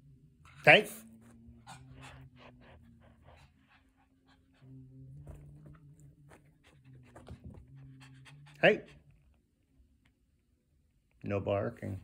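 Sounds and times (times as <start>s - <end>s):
dog panting quickly: 1.5s - 5.5s, 6.3s - 9.1s.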